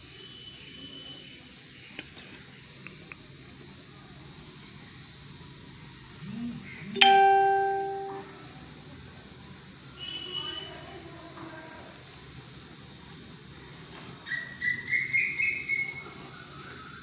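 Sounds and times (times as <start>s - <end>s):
insect drone: 3.6s - 8.1s
phone notification chime: 6.9s - 8.3s.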